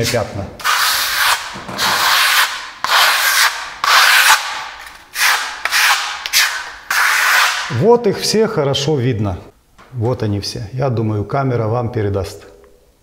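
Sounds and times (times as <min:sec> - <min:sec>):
trowel scraping plaster on wall: 0:00.0 - 0:07.7.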